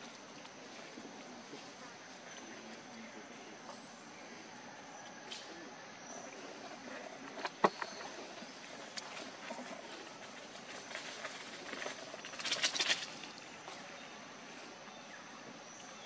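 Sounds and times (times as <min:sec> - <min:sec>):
rustling crackle: 0:08.8 - 0:13.4.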